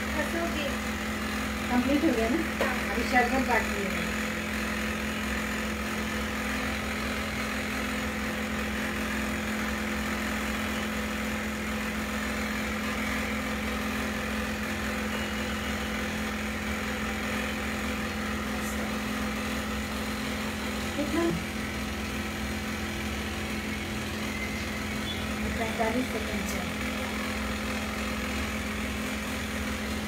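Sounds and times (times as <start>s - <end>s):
low machine hum: 0.0s - 30.0s.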